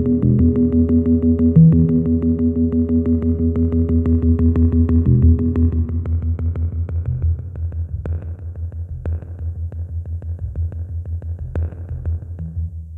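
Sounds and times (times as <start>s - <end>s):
pulsing synthesizer bass line: 0.0s - 7.5s.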